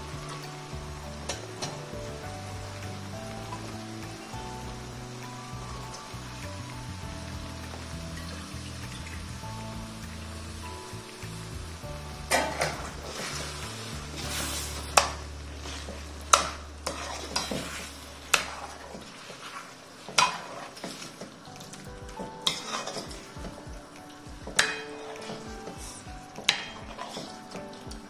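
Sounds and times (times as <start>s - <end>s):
gravy sizzling: 0.0s - 28.0s
metal spoon scraping pan: 12.3s - 21.2s, 22.4s - 23.1s.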